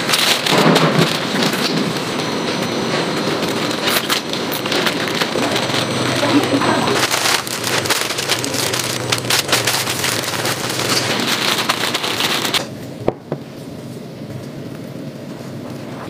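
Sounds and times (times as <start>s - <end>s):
plastic bag crinkling: 0.0s - 12.7s.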